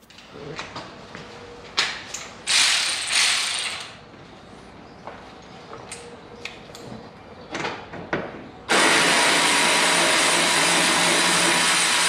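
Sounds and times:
power tool running: 0:08.7 - 0:12.0.

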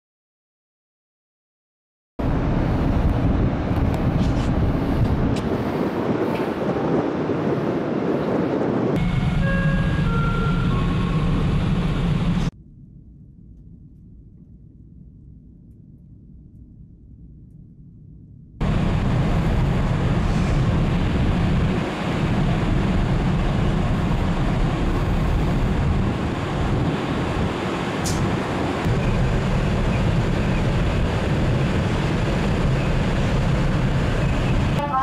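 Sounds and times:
wind noise on microphone: 0:02.2 - 0:17.0, 0:18.6 - 0:34.9
steady low rumble: 0:02.2 - 0:35.0.

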